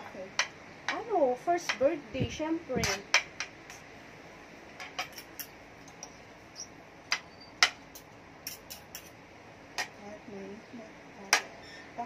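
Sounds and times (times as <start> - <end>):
metal utensils clinking on pan: 4.8 - 6.1, 7.6 - 9.2.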